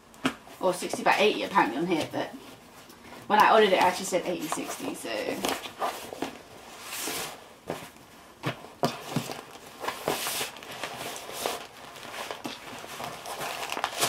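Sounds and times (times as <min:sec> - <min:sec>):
plastic sheet crinkling: 0:08.9 - 0:14.0.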